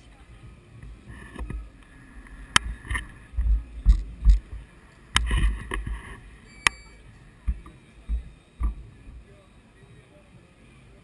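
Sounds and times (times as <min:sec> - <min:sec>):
camera jostling thumps and rumble: 0:00.8 - 0:06.4, 0:07.4 - 0:09.1.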